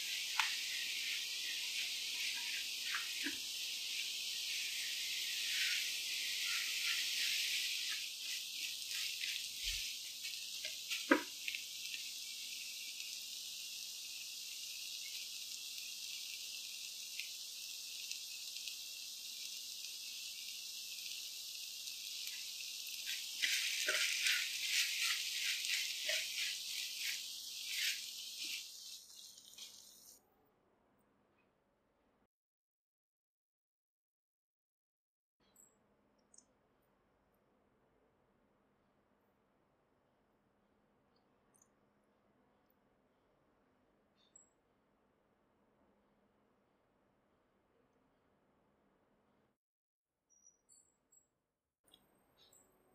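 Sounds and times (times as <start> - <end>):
spatula stirring and scraping: 0.0 - 13.2, 22.2 - 30.2
masala sizzling in a pan: 0.0 - 30.2.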